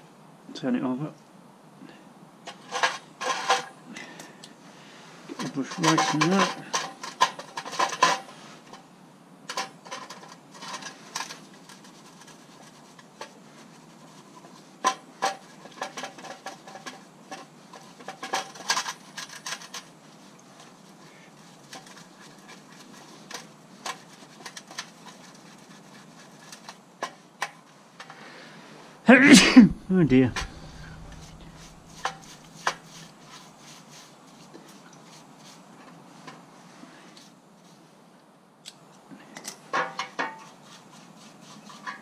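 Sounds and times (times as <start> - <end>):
paintbrush scrubbing metal: 10.5 - 27.3, 30.1 - 36.3, 40.3 - 42.0.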